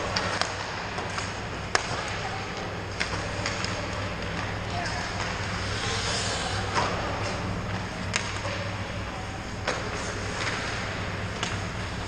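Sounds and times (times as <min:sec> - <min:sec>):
hockey sticks and puck clacking: 0:00.0 - 0:06.0, 0:06.7 - 0:08.7, 0:09.6 - 0:12.0
steady low hum: 0:00.0 - 0:12.0
skates scraping ice: 0:03.0 - 0:07.4.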